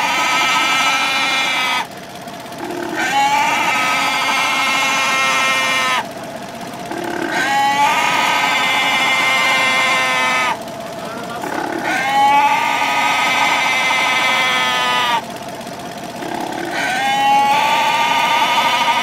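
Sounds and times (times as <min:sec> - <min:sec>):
farm animal bleating: 0:00.0 - 0:01.9, 0:02.6 - 0:06.1, 0:06.9 - 0:15.3, 0:16.2 - 0:19.0.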